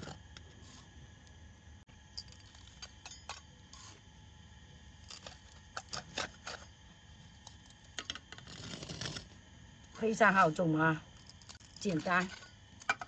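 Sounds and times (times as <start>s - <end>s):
metal scoop scraping potting mix: 2.2s - 4.1s, 5.0s - 9.4s, 11.2s - 13.0s.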